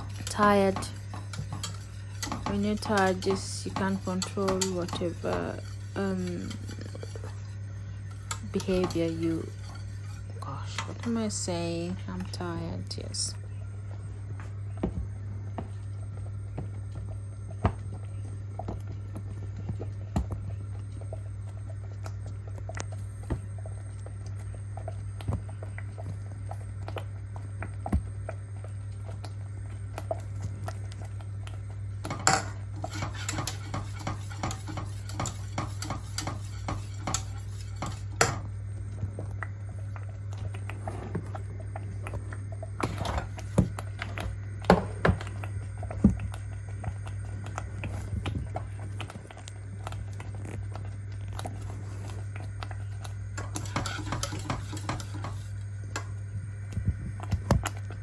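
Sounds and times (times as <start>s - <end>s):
whisk scraping metal pot: 0.0s - 11.5s, 32.0s - 38.4s, 53.4s - 55.6s
steady low hum: 0.0s - 58.0s.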